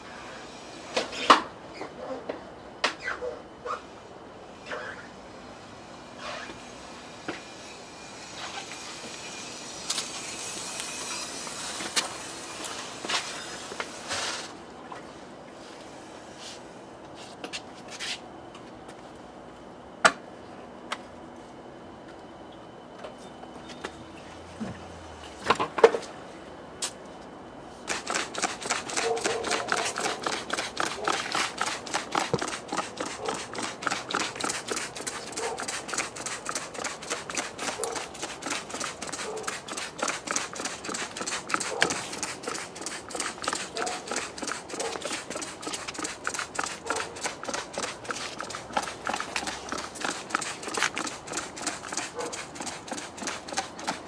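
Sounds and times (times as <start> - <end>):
spray bottle squirts hissing: 27.9 - 54.0.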